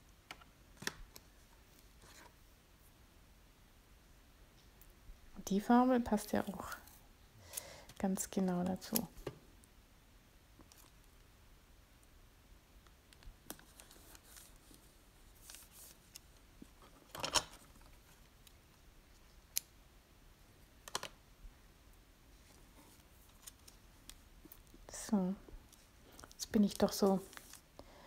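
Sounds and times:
paper and tape rustling: 13.4s - 18.4s, 25.7s - 27.7s
crinkling paper rustle: 13.5s - 18.5s, 25.6s - 27.7s.

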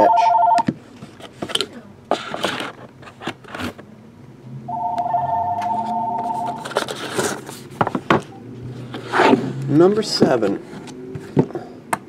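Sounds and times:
two-tone telephone ring: 0.0s - 0.7s, 4.7s - 6.6s.

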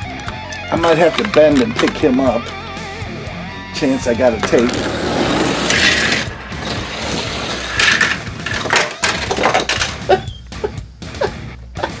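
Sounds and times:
toy car rattling on plastic track: 7.2s - 10.0s.

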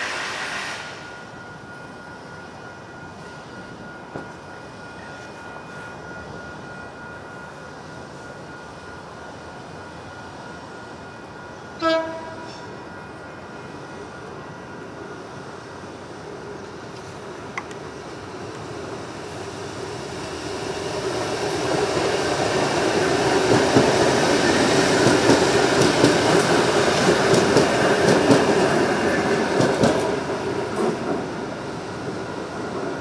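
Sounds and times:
electric train passing: 0.0s - 33.0s
train wheels clicking: 21.2s - 31.4s.

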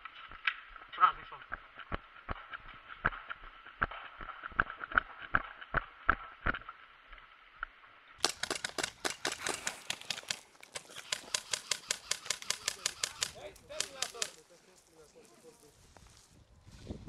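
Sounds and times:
airsoft gun shots: 8.2s - 14.4s
person speaking: 9.3s - 15.8s.

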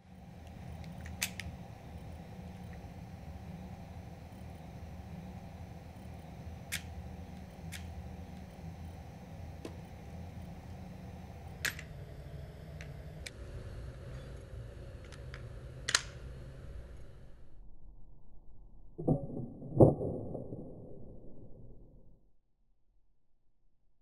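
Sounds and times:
steady low hum: 0.0s - 19.0s
revolver metallic clicks: 0.4s - 3.0s, 6.0s - 8.8s, 15.0s - 16.4s
revolver action snaps: 6.6s - 8.6s, 15.1s - 16.4s.

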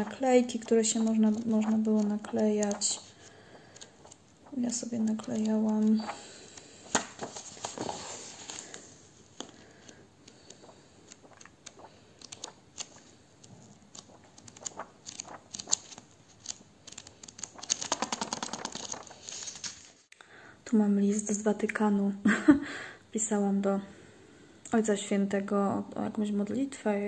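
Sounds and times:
paper pages rustling and flicking: 0.0s - 20.1s.

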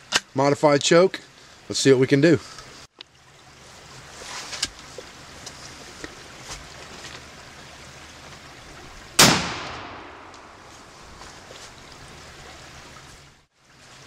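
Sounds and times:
shotgun firing: 9.2s - 10.6s.

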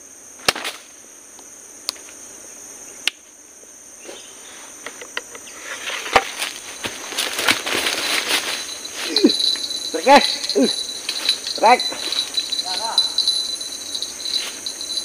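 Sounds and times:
insects chirring: 0.0s - 15.0s
rustling and crackling: 5.7s - 15.0s.

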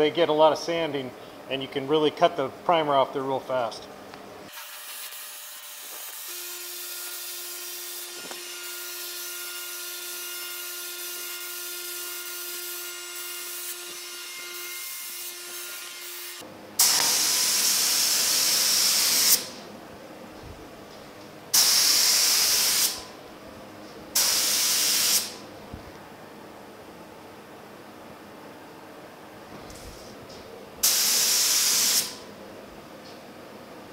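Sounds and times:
spray gun air hiss bursts: 16.8s - 19.6s, 21.5s - 23.1s, 24.1s - 25.4s, 30.8s - 32.3s
faint hum: 25.4s - 30.8s.

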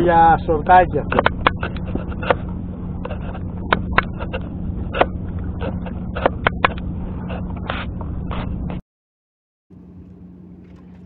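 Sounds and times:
steady low hum: 0.0s - 8.8s, 9.7s - 11.0s
clicks and taps of fish: 1.1s - 2.4s, 3.0s - 6.8s.

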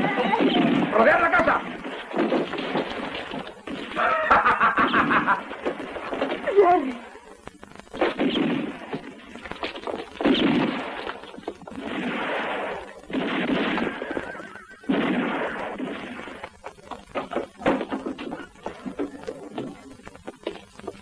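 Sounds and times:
heavy gunshots with echo: 11.8s - 16.4s.

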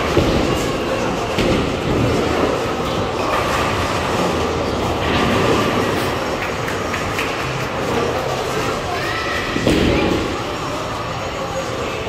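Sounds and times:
bowling balls rolling: 0.0s - 8.5s.

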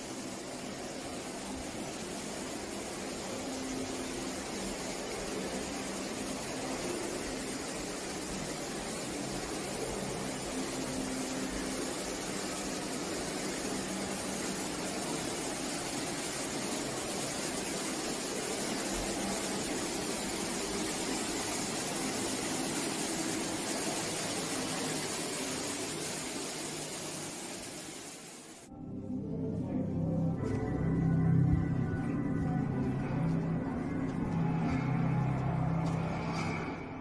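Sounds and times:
steady hiss: 0.0s - 28.7s.

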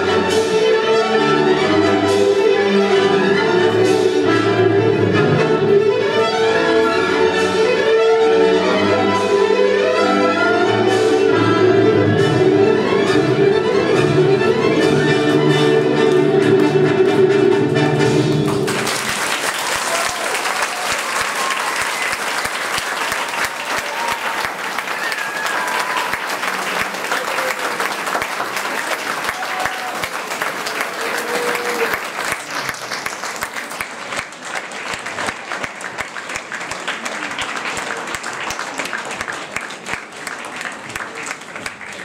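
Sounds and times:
audience applauding: 18.2s - 42.0s.

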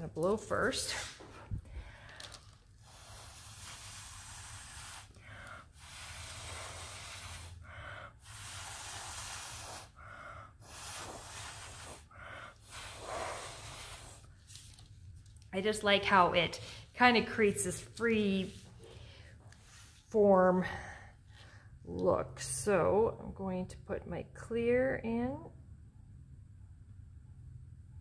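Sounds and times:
quick breaths drawn in: 1.0s - 14.5s
breath blown through a straw: 1.0s - 14.6s.

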